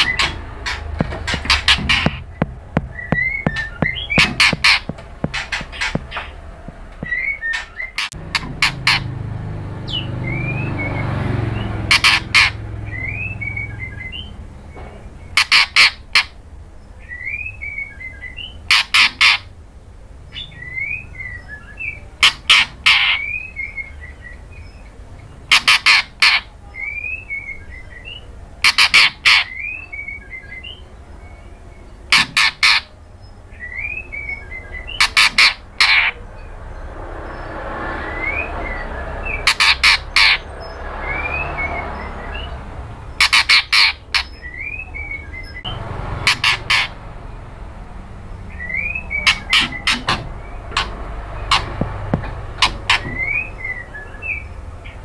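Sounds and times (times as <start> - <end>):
bird harsh rasping calls: 0.0 - 14.4, 15.2 - 19.6, 20.3 - 30.8, 31.4 - 47.6, 48.2 - 55.0
bird whistled chirps: 48.5 - 50.1, 52.9 - 54.5.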